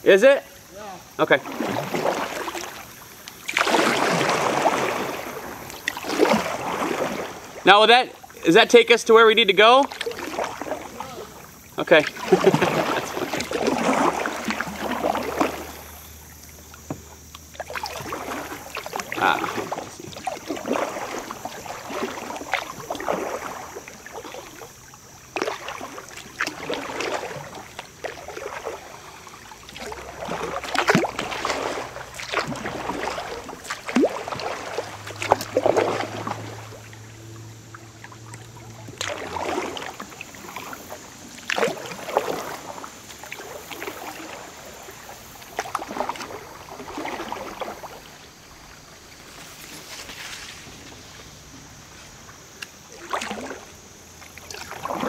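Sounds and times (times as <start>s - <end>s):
paddle splashing in river water: 0.0s - 55.0s.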